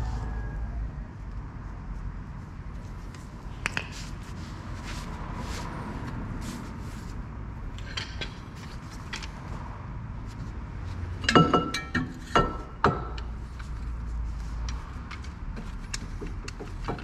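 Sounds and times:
metal tools clicking and clinking: 11.2s - 12.5s.

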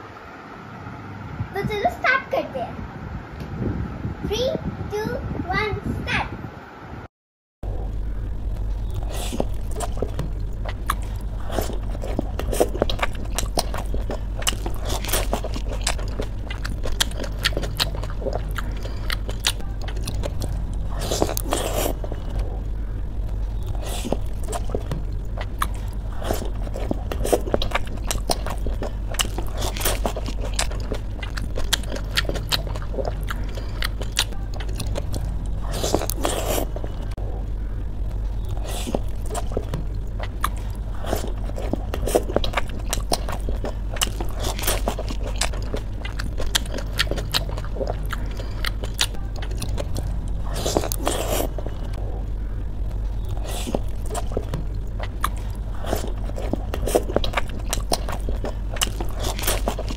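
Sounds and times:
steady low hum: 0.0s - 59.9s
chewing: 7.7s - 59.9s
crisp shells crunching: 9.0s - 22.4s, 23.2s - 36.9s, 38.6s - 52.0s, 53.2s - 59.9s.

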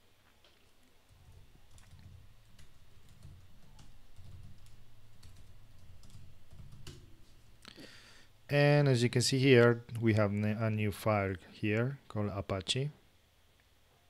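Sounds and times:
steady low hum: 0.0s - 14.0s
keyboard keystrokes: 1.1s - 7.1s.

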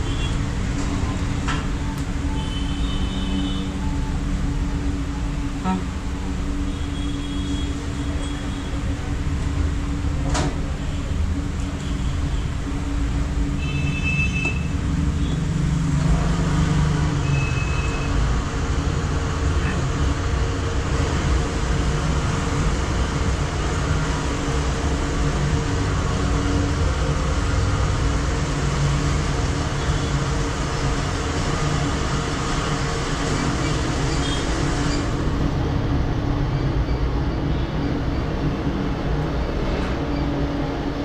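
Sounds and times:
road traffic: 0.0s - 41.0s.

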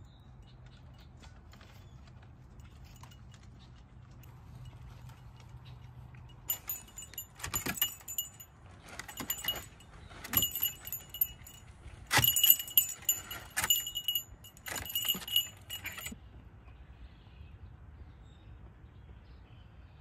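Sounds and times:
small metal pieces jingling: 6.4s - 16.2s.

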